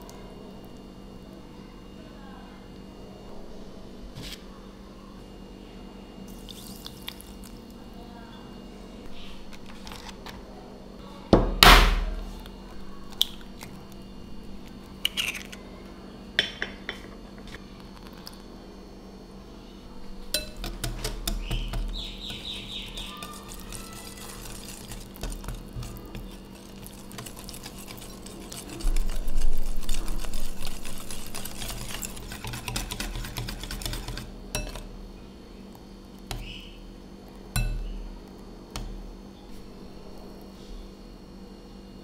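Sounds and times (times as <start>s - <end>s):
whisk beating batter in glass bowl: 20.3s - 35.0s.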